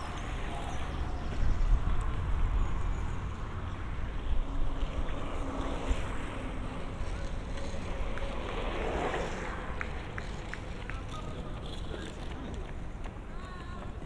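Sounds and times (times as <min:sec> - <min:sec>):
outdoor noise: 0:00.0 - 0:14.0.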